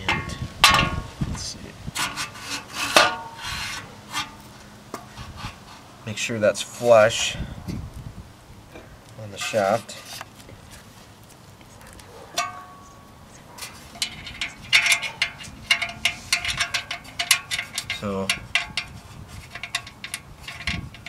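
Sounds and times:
metallic clicking and ticking: 0:14.0 - 0:18.9.

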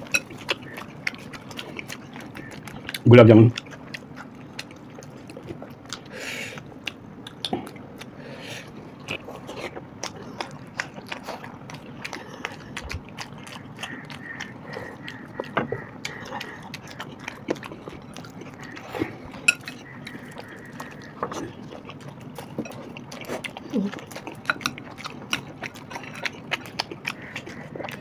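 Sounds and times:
chewing and lip smacks: 0:00.0 - 0:28.0.

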